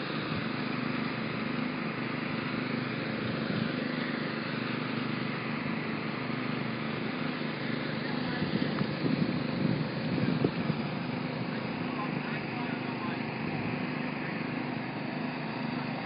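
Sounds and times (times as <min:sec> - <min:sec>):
vehicle engine and traffic noise: 0:00.0 - 0:16.0.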